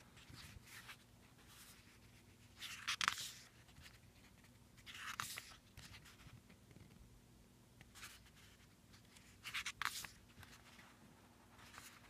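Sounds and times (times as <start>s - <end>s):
paper rustling: 0.0s - 6.4s, 7.9s - 12.0s
paper pages flipping: 0.2s - 6.4s, 7.9s - 10.9s, 11.6s - 12.0s.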